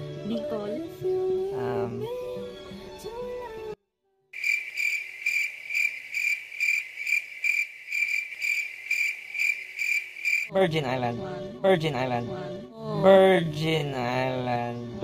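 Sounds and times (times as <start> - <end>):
background music: 0.0 - 3.8, 10.5 - 15.0
cricket chirping: 4.4 - 10.5.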